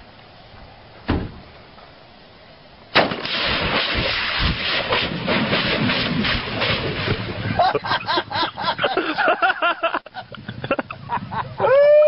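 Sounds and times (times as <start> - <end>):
loud fireball blast: 2.9 - 7.6
short sharp bang: 3.0 - 7.0
flames rushing and crackling: 3.0 - 7.6.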